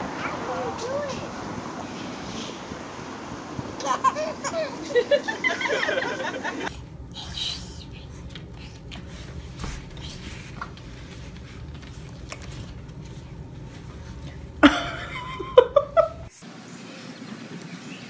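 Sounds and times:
low hum: 0:06.6 - 0:16.4.

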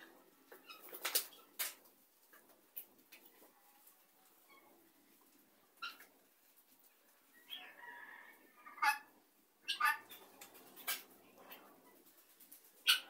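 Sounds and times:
guineafowl calling: 0:08.7 - 0:10.2.

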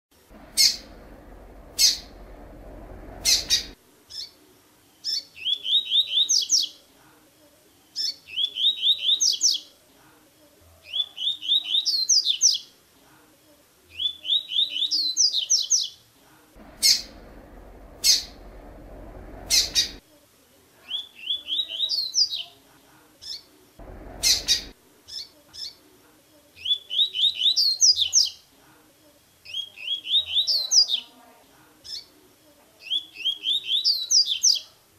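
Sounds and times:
bird singing quick repeated notes: 0:00.3 - 0:04.3, 0:16.6 - 0:20.0, 0:23.8 - 0:25.7
sharp bird call notes: 0:23.8 - 0:24.7.

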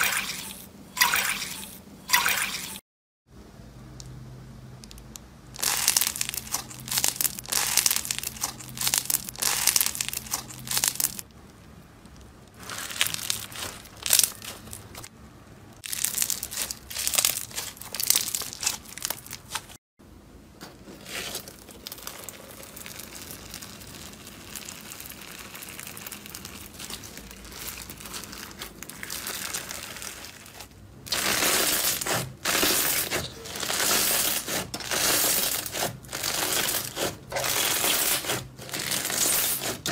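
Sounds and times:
slime crackling: 0:05.6 - 0:11.3, 0:12.0 - 0:15.1, 0:15.8 - 0:19.8, 0:20.8 - 0:39.9.

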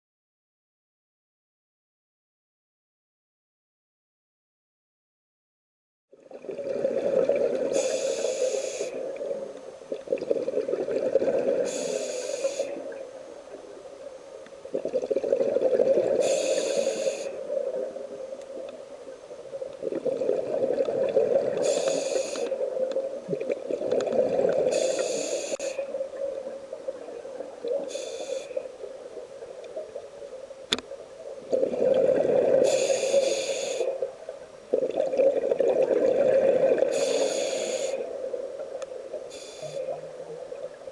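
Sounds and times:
exhaled bubbles rushing: 0:06.2 - 0:07.8, 0:10.0 - 0:11.7, 0:14.7 - 0:16.2, 0:19.8 - 0:21.7, 0:22.6 - 0:24.8, 0:31.4 - 0:32.7, 0:34.7 - 0:36.9
regulator inhale hiss: 0:07.6 - 0:09.2, 0:11.6 - 0:13.0, 0:16.1 - 0:17.6, 0:21.5 - 0:22.8, 0:24.6 - 0:26.0, 0:27.7 - 0:28.9, 0:32.5 - 0:34.1, 0:36.8 - 0:38.2, 0:39.2 - 0:40.0.

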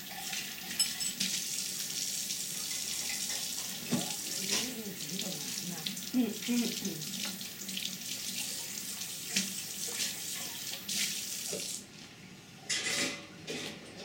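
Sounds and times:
water running: 0:00.0 - 0:11.9.

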